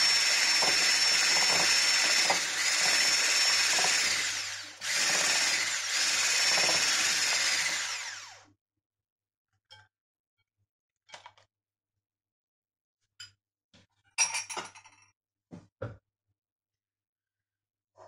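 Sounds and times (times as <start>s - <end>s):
electric hand mixer whisking: 0.0s - 8.4s.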